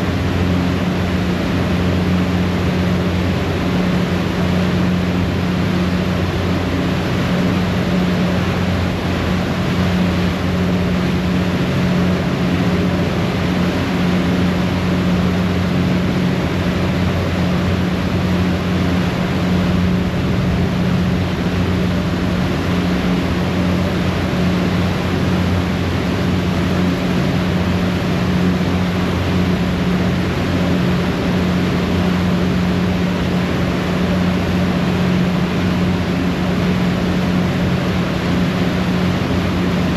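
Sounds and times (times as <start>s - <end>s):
ferry engines humming: 0.0s - 39.9s
rushing propeller wash: 0.0s - 39.9s.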